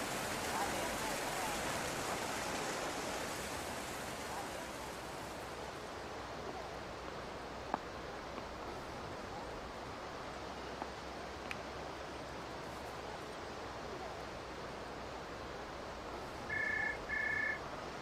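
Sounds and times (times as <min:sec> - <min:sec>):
steady hiss: 0:00.0 - 0:18.0.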